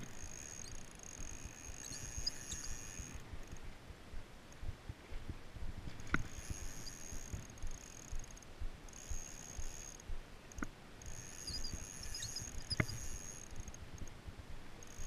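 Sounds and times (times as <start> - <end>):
thin high steady tone: 0.0 - 3.7, 6.3 - 14.1, 14.8 - 15.0
wind and handling rumble: 0.0 - 15.0
faint high chirps: 0.1 - 3.2, 6.4 - 13.8.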